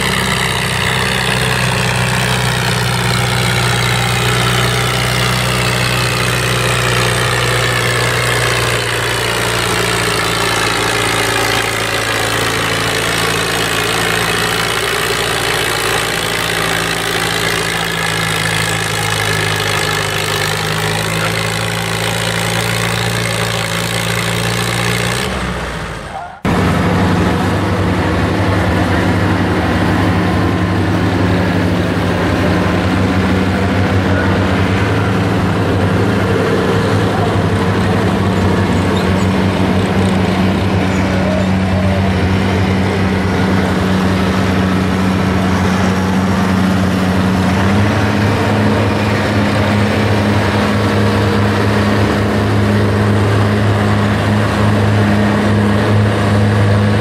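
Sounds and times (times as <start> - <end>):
diesel tractor engine under load: 0.0 - 57.0.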